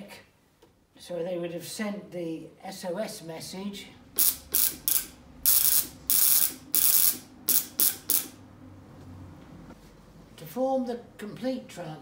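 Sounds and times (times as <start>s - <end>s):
spark gap sparking in bursts: 4.2s - 8.4s.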